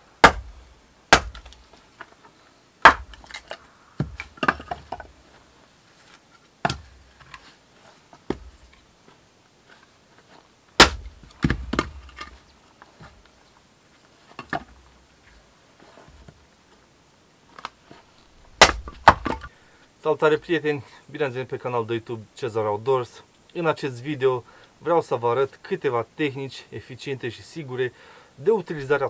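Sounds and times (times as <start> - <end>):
axe chopping firewood: 0.2 - 1.7, 2.8 - 5.1, 6.6 - 7.4, 10.8 - 12.4, 18.5 - 19.5
split wood falling: 0.2 - 2.2, 2.8 - 5.2, 6.1 - 7.4, 10.8 - 13.2, 18.4 - 19.5.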